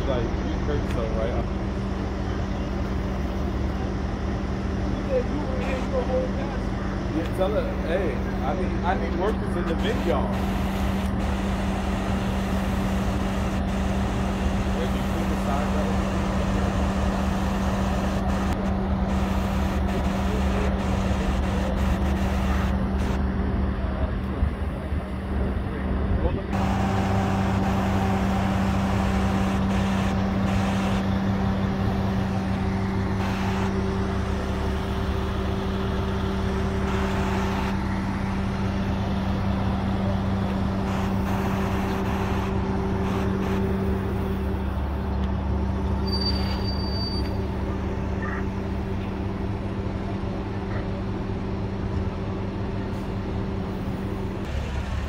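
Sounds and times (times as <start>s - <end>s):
diesel engine idling: 0.0s - 55.0s
short high beep: 46.0s - 47.4s.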